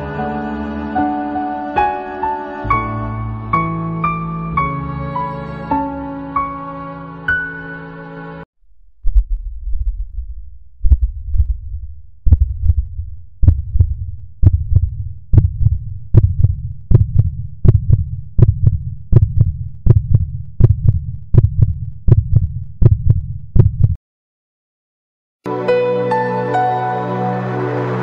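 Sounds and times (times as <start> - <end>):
soft music: 0.0 - 8.5, 25.4 - 28.0
heartbeat lub-dub beats: 8.8 - 24.0.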